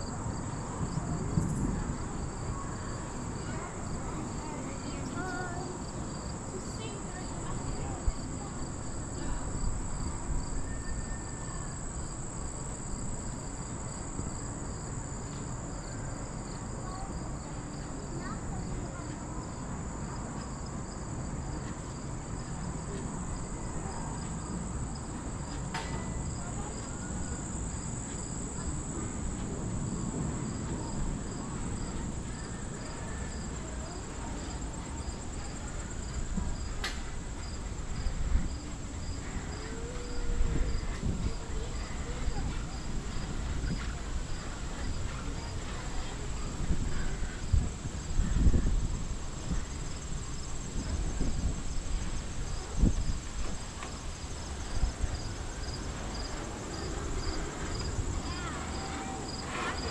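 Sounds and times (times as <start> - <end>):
pulsing insect chirp: 46.8 - 59.9.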